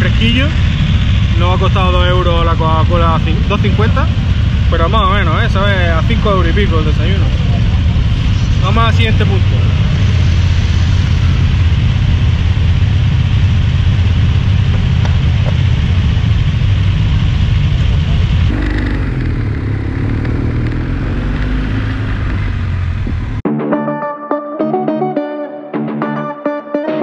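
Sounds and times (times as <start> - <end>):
motorcycle engine idling: 0.0 - 21.6
motorcycle pulling away: 0.0 - 23.4.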